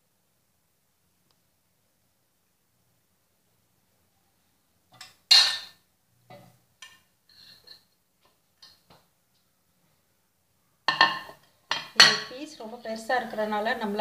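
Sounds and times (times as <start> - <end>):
ceramic plates clinking: 5.0 - 5.8, 6.4 - 7.9, 10.9 - 12.3.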